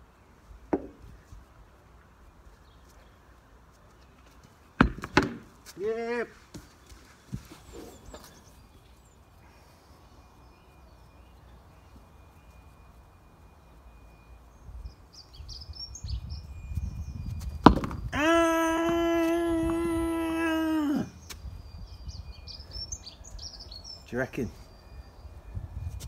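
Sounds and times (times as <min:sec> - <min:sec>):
faint birdsong: 0:00.0 - 0:26.0
bat hitting tennis ball: 0:04.8 - 0:05.5, 0:17.6 - 0:18.1
person shouting: 0:18.1 - 0:21.2.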